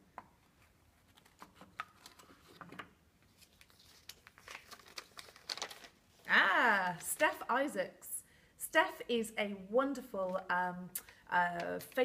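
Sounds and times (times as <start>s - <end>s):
paper crinkling: 0.4s - 6.3s.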